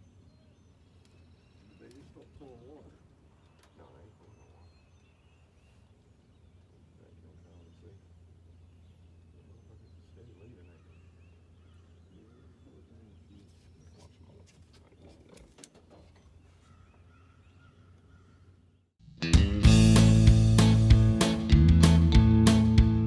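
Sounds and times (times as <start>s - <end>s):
low steady hum: 0.0s - 15.4s
bird chirps: 0.0s - 18.9s
light clicks: 3.4s - 3.8s.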